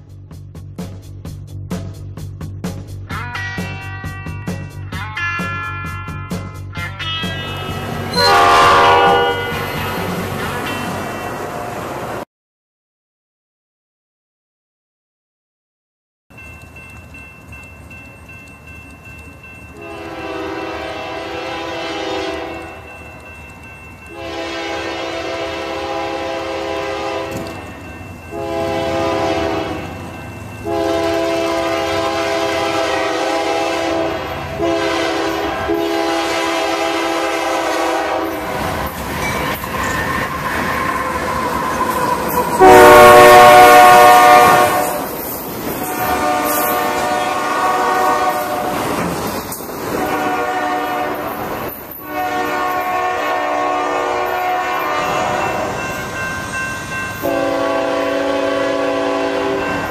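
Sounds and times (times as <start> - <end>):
train rumble: 0.0 - 12.2, 16.3 - 59.9
train air horn blasts: 7.7 - 10.9, 19.8 - 22.9, 24.1 - 27.6, 28.3 - 30.0, 30.6 - 38.9, 40.2 - 45.2, 45.8 - 49.0, 50.0 - 51.4, 52.0 - 55.9, 57.2 - 59.9
wheels clattering on rails: 37.6 - 43.0, 44.5 - 47.5, 48.3 - 53.0.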